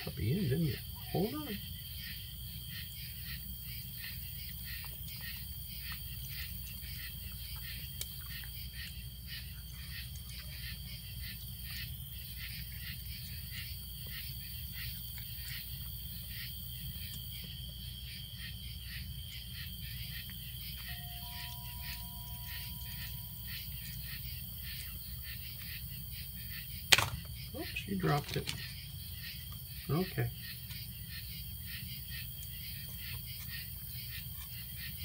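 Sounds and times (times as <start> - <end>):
night insects chirping: 0.0 - 35.0.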